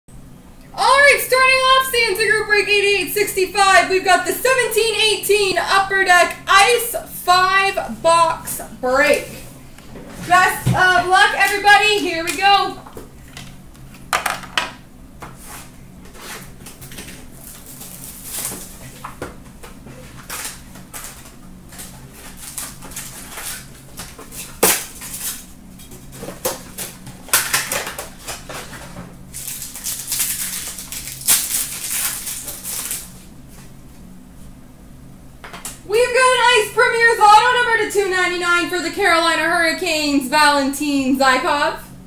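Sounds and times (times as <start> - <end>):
wrapper crinkling: 16.8 - 19.0, 20.0 - 25.5, 29.3 - 33.2.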